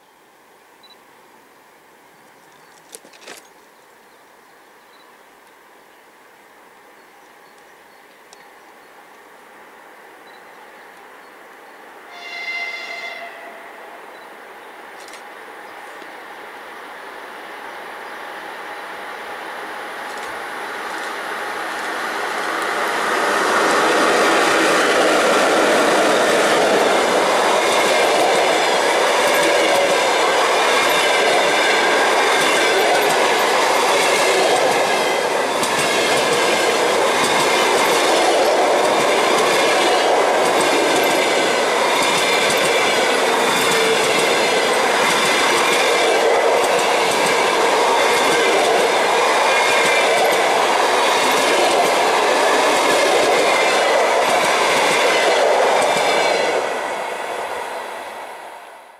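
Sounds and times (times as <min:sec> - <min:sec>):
electric locomotive passing: 0:09.5 - 0:58.9
train wheels clacking over rail joints: 0:26.2 - 0:56.6.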